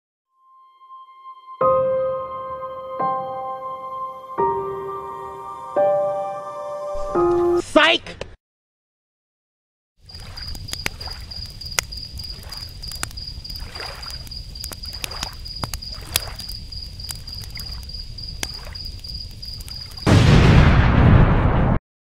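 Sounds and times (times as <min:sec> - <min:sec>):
ocean waves washing on beach: 0:10.1 - 0:16.6
cartoon explosion blast: 0:20.0 - 0:21.8.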